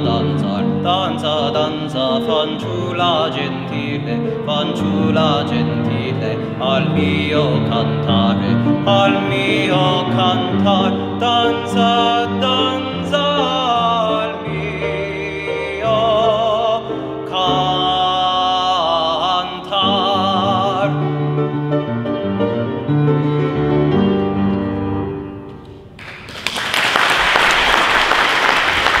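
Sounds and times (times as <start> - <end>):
man singing with vibrato: 0.0 - 21.6
piano accompaniment: 0.0 - 29.0
audience applause: 26.0 - 29.0.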